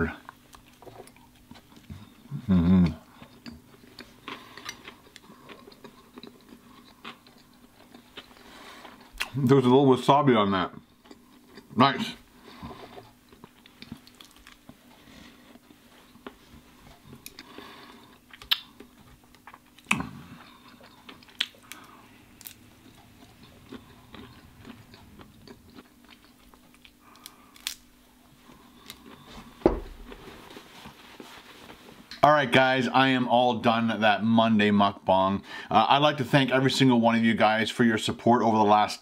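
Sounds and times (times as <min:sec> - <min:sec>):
man chewing food: 0:00.2 - 0:09.5, 0:10.7 - 0:32.2
wet mouth smacks: 0:18.3 - 0:18.7.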